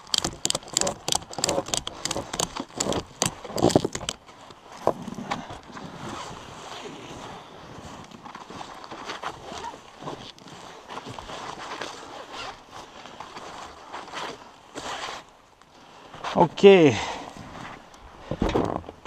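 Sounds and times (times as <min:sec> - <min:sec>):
strap ratchet rasping clicks: 0:00.0 - 0:04.2
strap scraping: 0:00.0 - 0:06.8, 0:08.6 - 0:12.6
handling of strap and log: 0:00.0 - 0:19.0.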